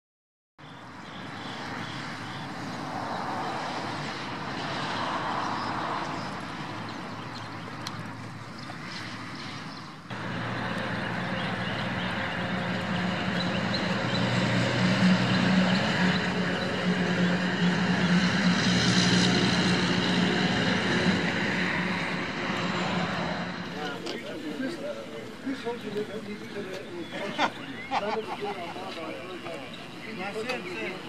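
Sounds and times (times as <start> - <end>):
traffic noise: 0.6 - 31.0.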